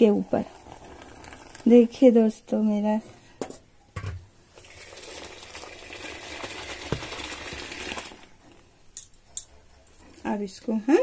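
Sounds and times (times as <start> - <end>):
milk pouring into steel vessel: 0.1 - 2.0, 4.5 - 8.6.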